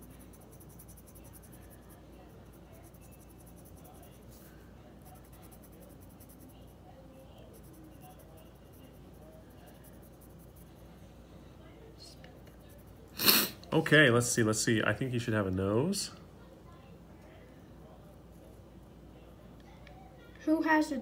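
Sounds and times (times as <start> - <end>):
pencil scratching on paper: 0.0 - 11.0, 12.2 - 13.4.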